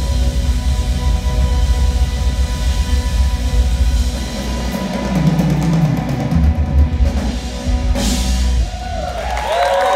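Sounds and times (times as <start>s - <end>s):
drum roll: 0.0s - 9.9s
live rock band playing: 0.0s - 9.9s.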